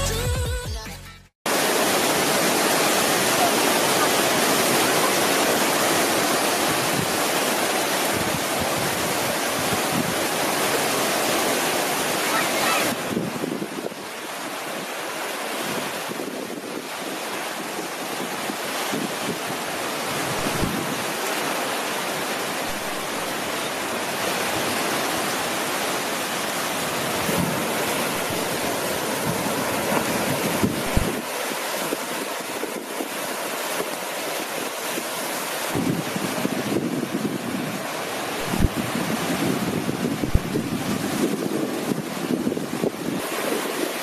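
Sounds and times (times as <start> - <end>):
ocean surf breaking on beach: 1.5 - 44.0
wind buffeting microphone: 8.0 - 10.7, 12.9 - 14.1, 17.6 - 21.1, 26.7 - 33.2, 35.7 - 44.0.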